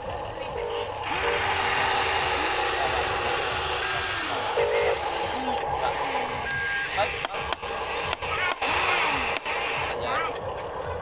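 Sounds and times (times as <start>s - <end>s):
electric motors whining: 0.0s - 11.0s
short electronic beeps: 3.8s - 5.4s, 6.2s - 7.2s.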